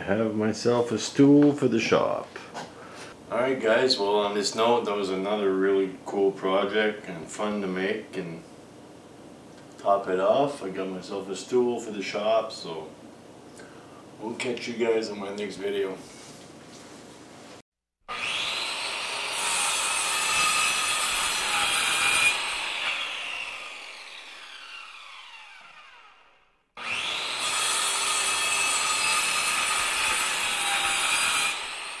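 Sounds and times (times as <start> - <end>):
power tool cutting wood: 18.1 - 32.0.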